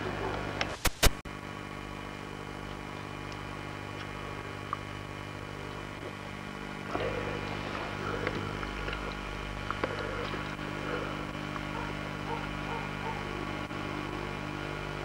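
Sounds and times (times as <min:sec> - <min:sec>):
electrical hum and hiss: 0:00.0 - 0:15.0
sharp tape click: 0:00.6 - 0:01.2.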